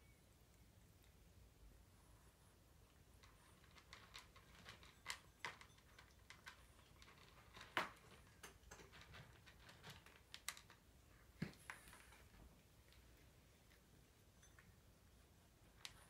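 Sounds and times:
cat crunching dry kibble: 2.9s - 12.3s.

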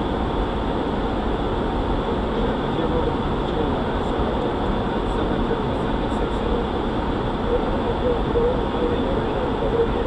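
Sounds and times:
airflow rush in cockpit: 0.0s - 10.0s.

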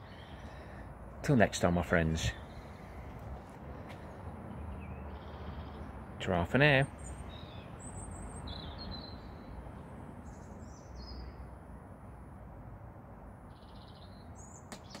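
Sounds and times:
small birds chirping: 0.0s - 0.8s, 2.3s - 11.5s, 13.5s - 15.0s
low outdoor hum: 0.0s - 15.0s.

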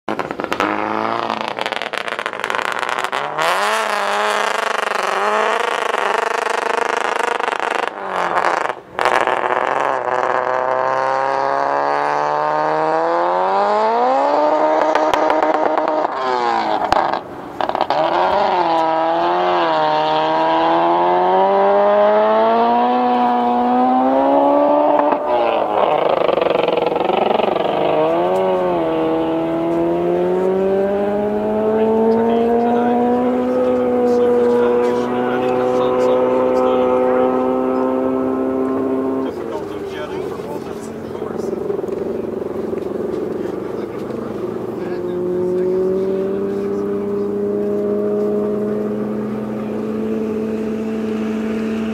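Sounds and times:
car engine accelerating through gears: 0.1s - 51.9s.

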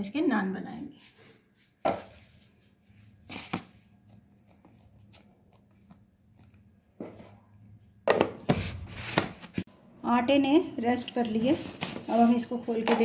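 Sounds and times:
knocks of bowl handling: 8.0s - 8.6s.

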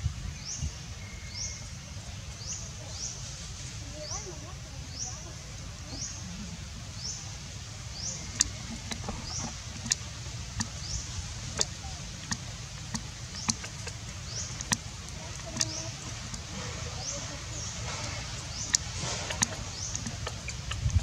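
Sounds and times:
steady low rumble: 5.5s - 21.0s
sharp clicks: 8.4s - 10.8s, 11.5s - 16.5s, 18.5s - 21.0s.

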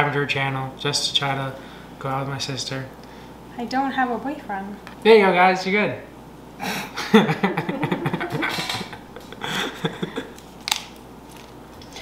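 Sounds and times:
soft wordless laughter: 6.6s - 10.4s.

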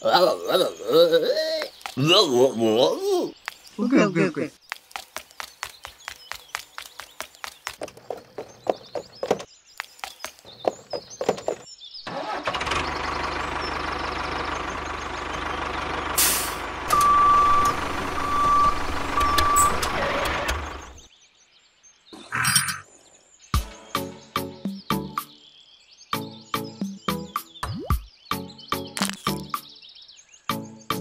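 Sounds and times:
heavy vehicle engine rumble: 11.5s - 21.1s
short hiss: 16.2s - 16.6s
reversing alarm beeps: 16.9s - 19.9s.

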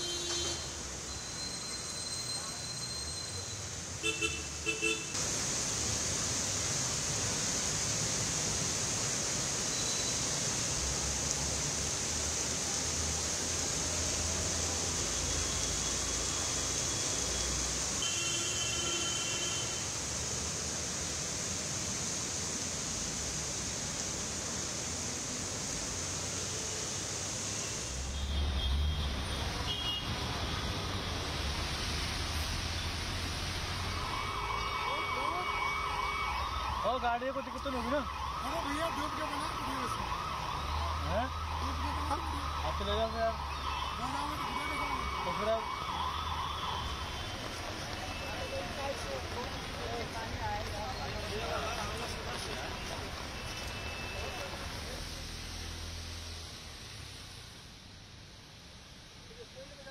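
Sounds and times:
heavy rain falling: 29.0s - 56.9s.

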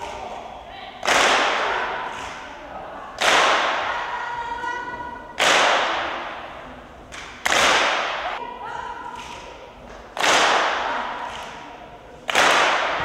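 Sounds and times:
loud sharp percussive hits: 5.4s - 8.4s, 12.3s - 13.0s.

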